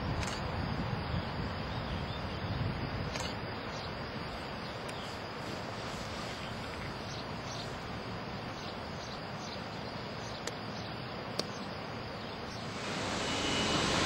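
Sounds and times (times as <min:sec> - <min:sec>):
faint insect chirps: 0:00.0 - 0:14.0
distant train rushing: 0:12.6 - 0:14.0.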